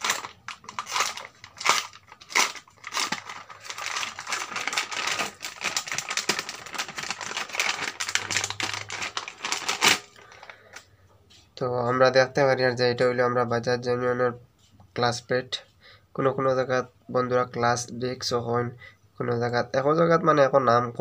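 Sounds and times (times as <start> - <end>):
knife slitting plastic packet: 0.0 - 10.5
plastic crinkling and rustling: 0.0 - 10.9.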